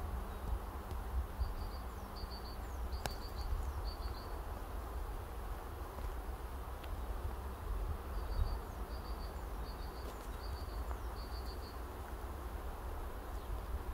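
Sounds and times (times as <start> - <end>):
steady outdoor hiss: 0.0 - 13.9
small bird calling: 1.4 - 4.7, 8.1 - 11.9.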